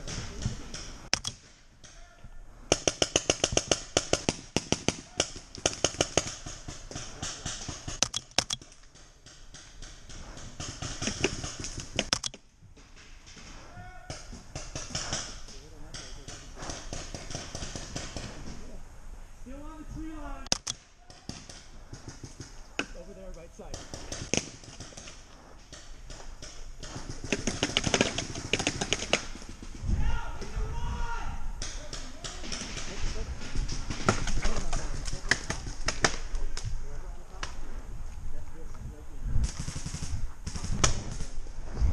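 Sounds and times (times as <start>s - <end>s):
paintball markers firing: 0.0s - 2.0s, 2.7s - 18.6s, 20.4s - 23.0s, 23.6s - 29.8s.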